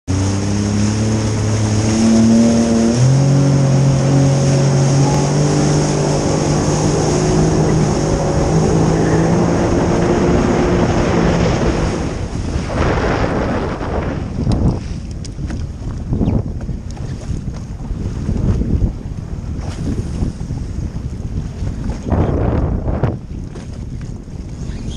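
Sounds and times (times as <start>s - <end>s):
personal watercraft engine running: 0.0s - 24.9s
water rushing: 0.1s - 16.3s
wind on microphone: 0.1s - 24.9s.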